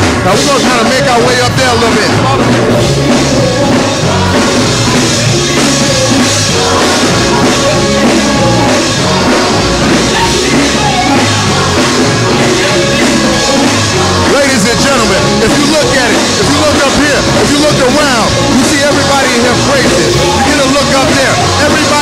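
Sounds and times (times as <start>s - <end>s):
band with drum kit playing: 0.0s - 22.0s
woman singing: 2.7s - 14.4s.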